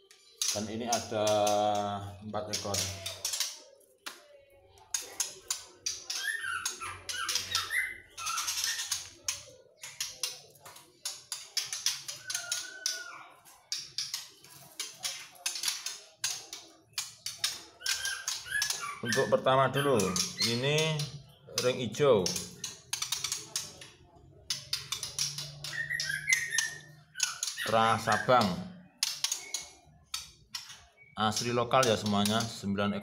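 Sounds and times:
caged birds chirping: 0:00.0 - 0:33.0
short wavering bird calls: 0:05.4 - 0:10.0, 0:25.0 - 0:30.0.

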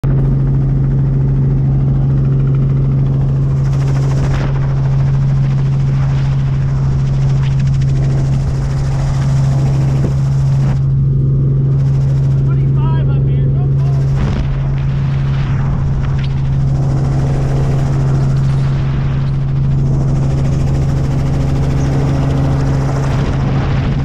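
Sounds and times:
helicopter rotor and engine drone: 0:00.0 - 0:24.0
wind rushing over microphone: 0:00.1 - 0:12.6, 0:13.7 - 0:24.0.

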